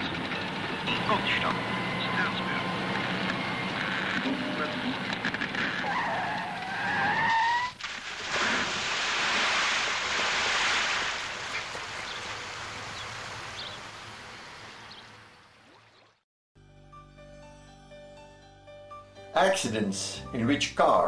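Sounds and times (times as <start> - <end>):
tyre squeal: 3.4 - 7.8
car plunging into water: 7.7 - 14.6.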